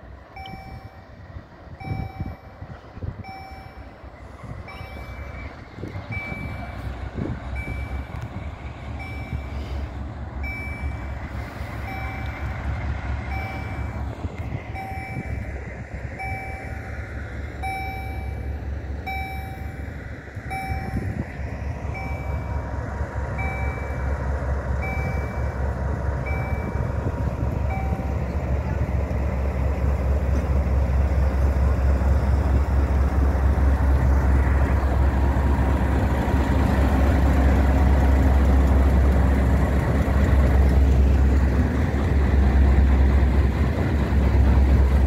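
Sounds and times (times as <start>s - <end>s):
diesel train rumbling: 0.0s - 45.0s
level crossing signal beeping: 0.3s - 1.2s, 1.8s - 8.3s, 8.9s - 29.7s.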